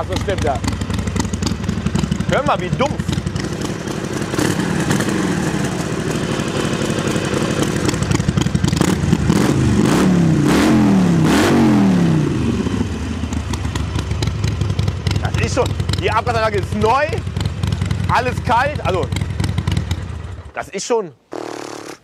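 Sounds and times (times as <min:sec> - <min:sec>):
motorcycle engine idling: 0:00.0 - 0:09.8, 0:12.1 - 0:20.6
motorcycle throttle blips: 0:00.0 - 0:11.6, 0:12.3 - 0:20.5.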